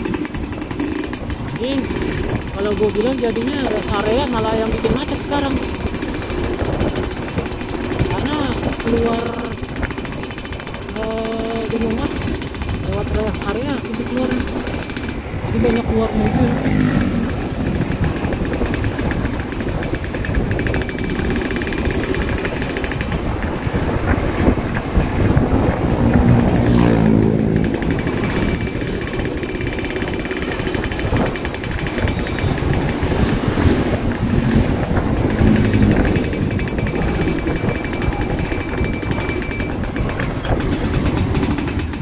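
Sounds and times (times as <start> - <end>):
motorcycle engine running: 0.0 - 42.0
wind and road noise: 0.0 - 42.0.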